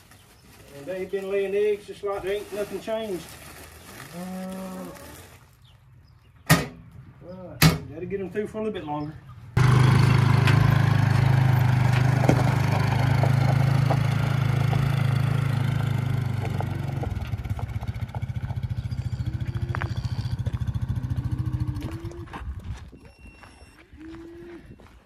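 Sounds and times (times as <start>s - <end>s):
engine running and idling: 9.6s - 22.7s.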